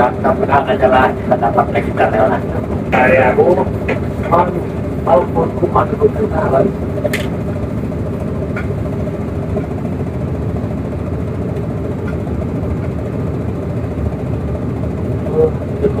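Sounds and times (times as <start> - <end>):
boat diesel engine drone: 0.0 - 16.0.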